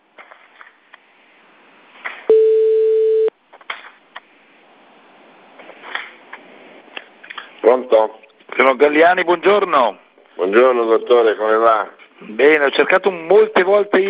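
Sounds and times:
telephone line hiss: 2.3s - 3.3s
telephone ringback tone: 2.3s - 3.3s.

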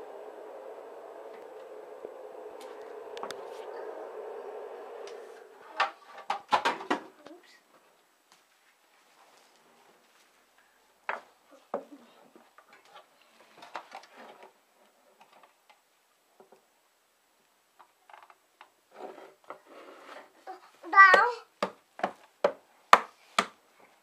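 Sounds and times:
faint child voices: 7.0s - 7.7s.

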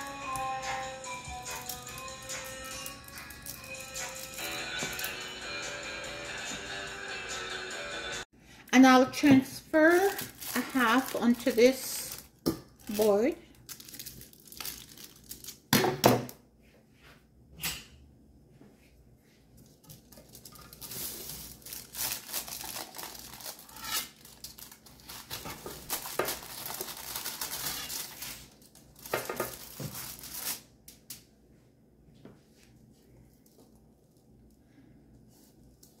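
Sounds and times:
aluminium foil crinkling: 1.4s - 5.1s, 9.7s - 15.7s, 19.6s - 31.1s
knife scraping along foil: 20.6s - 28.6s.

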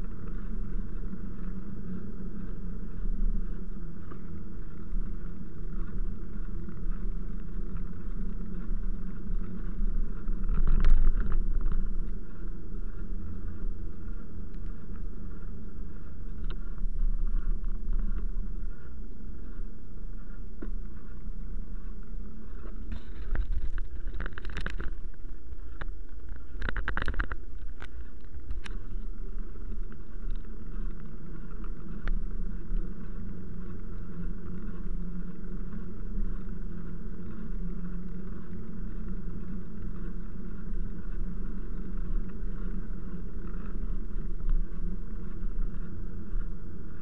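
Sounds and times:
wind on microphone: 0.0s - 47.0s
wheels rattling over cobbles: 21.3s - 36.6s.

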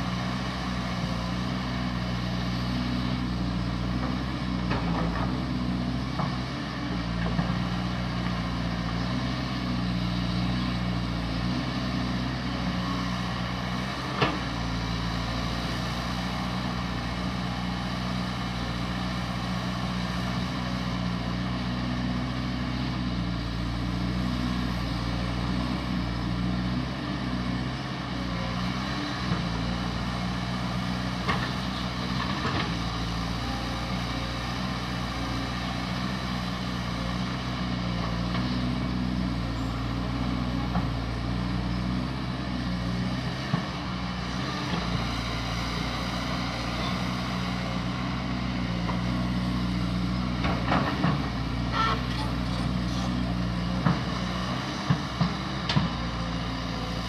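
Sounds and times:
excavator diesel engine running: 0.0s - 57.0s.

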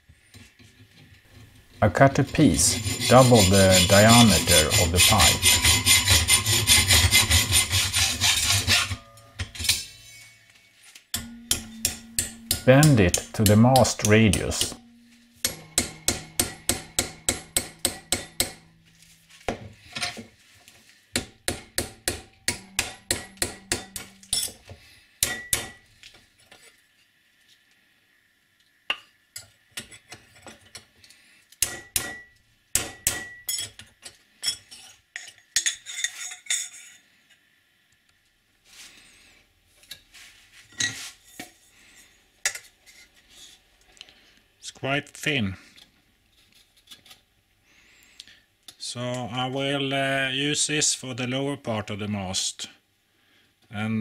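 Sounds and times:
hammer striking metal strip: 11.2s - 18.9s, 21.2s - 24.6s, 25.2s - 25.8s, 31.6s - 33.4s.

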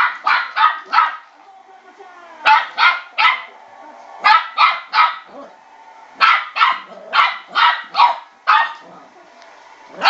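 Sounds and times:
puppy barking sharply: 0.0s - 1.3s, 2.5s - 3.5s, 4.2s - 5.3s, 6.2s - 8.8s.

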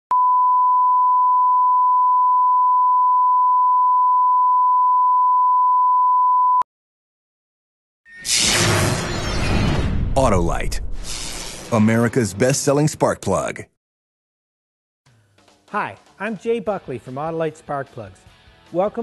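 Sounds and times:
steady test tone beep: 0.1s - 6.6s.

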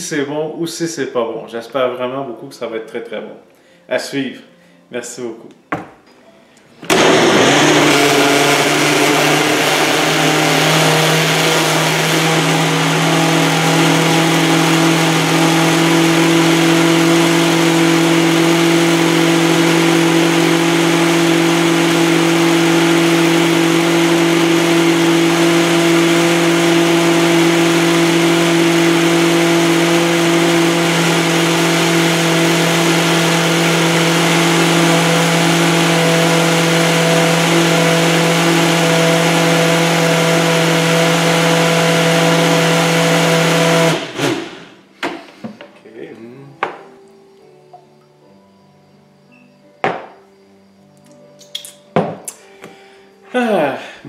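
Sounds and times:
blender motor whirring: 6.8s - 44.8s.

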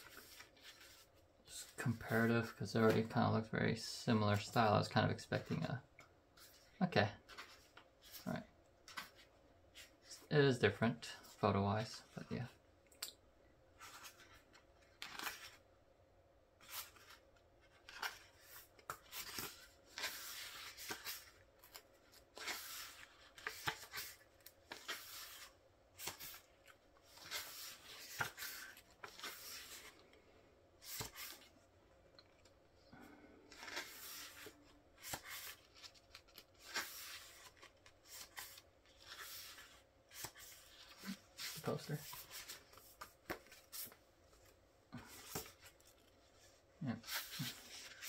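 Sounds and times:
paper pages turning: 0.0s - 2.1s, 13.8s - 15.6s, 16.6s - 30.1s, 30.8s - 31.5s, 33.5s - 48.0s.

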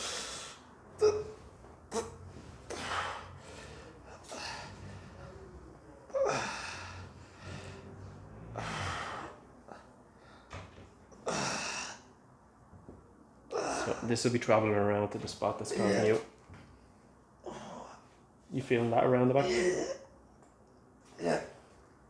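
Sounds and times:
man gasping breaths: 2.6s - 5.4s.

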